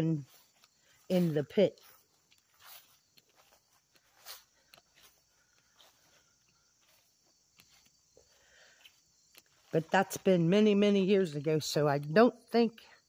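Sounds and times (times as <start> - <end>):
soft footsteps: 0.0 - 10.4.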